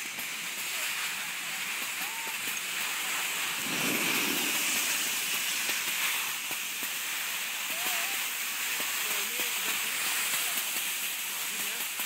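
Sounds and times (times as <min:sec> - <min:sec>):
outdoor snow slope hiss: 0:00.0 - 0:12.0
snowboard sliding over snow: 0:00.8 - 0:08.2.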